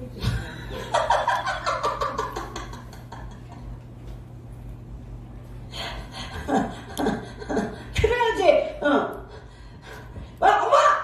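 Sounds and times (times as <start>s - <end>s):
low steady hum: 0.0s - 11.0s
person laughing: 6.2s - 7.9s.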